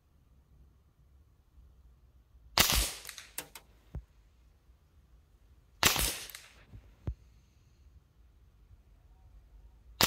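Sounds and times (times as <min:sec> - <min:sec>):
rifle shots with ringing tail: 0:02.6 - 0:03.6, 0:05.8 - 0:06.6.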